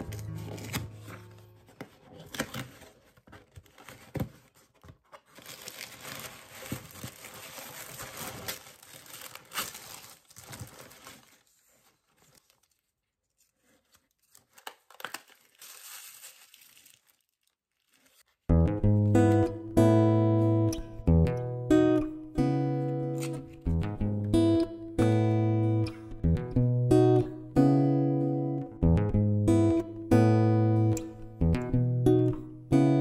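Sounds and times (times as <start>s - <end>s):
tissue paper crinkling: 0.0s - 18.5s.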